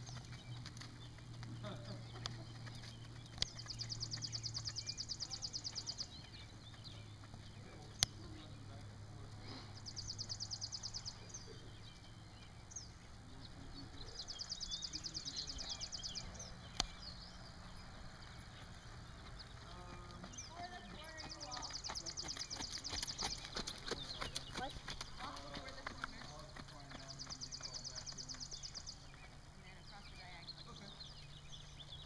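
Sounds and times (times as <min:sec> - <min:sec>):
low steady hum: 0:00.0 - 0:32.0
sharp clicks: 0:02.2 - 0:03.9.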